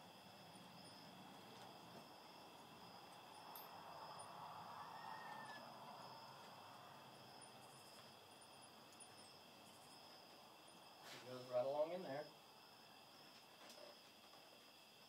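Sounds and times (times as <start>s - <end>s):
crickets trilling: 0.0s - 15.0s
soft rustle: 7.6s - 11.5s.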